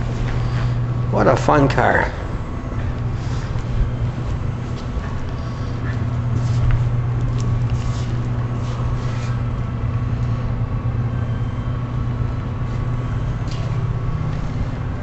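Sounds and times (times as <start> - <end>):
low mechanical hum: 0.0 - 15.0
soft rustles: 3.6 - 9.4.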